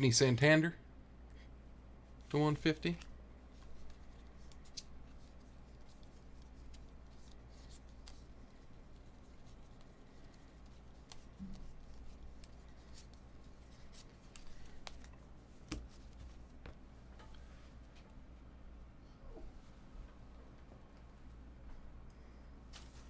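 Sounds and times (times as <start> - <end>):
low steady hum: 0.0 - 23.0
cards sliding and flicking: 2.8 - 8.7, 9.4 - 16.3
light clicks of cards: 2.8 - 8.8, 9.6 - 16.3.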